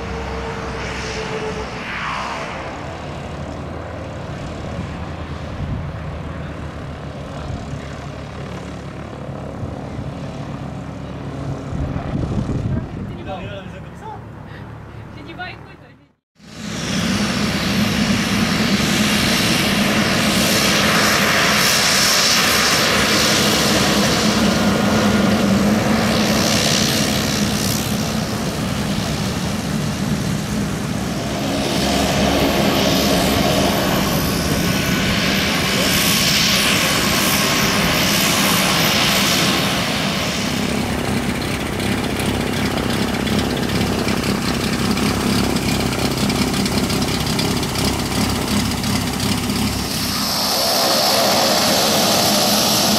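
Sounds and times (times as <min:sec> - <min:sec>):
hissing whine: 0:00.0 - 0:04.5, 0:16.4 - 0:52.9
turboprop engine drone: 0:00.0 - 0:15.5, 0:16.4 - 0:52.9.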